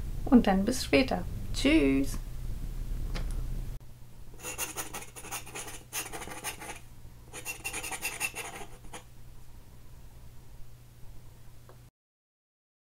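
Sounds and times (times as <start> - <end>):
faint low hum: 0.0 - 11.9
scratching: 4.4 - 9.1.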